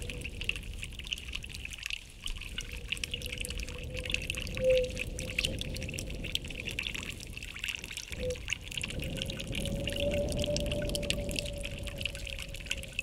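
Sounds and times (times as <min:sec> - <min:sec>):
water trickling and pouring: 0:00.0 - 0:13.0
thin steady held tone: 0:08.1 - 0:08.4
low rumble: 0:08.2 - 0:13.0.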